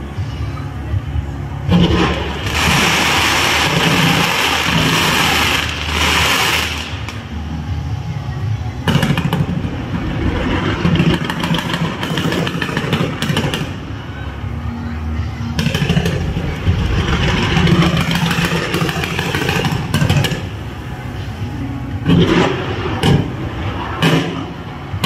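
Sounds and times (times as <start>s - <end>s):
low rumble: 0.0s - 25.0s
fireworks crackling pops: 1.8s - 7.3s, 10.6s - 13.8s, 17.1s - 20.6s
fireworks hissing spray: 2.3s - 7.2s.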